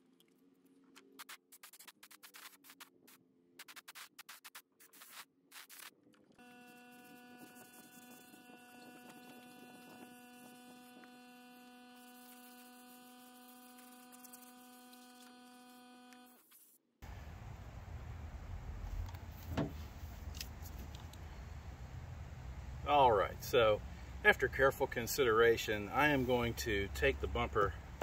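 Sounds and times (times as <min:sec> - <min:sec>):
outdoor noise with low rumble: 0:17.0 - 0:28.0.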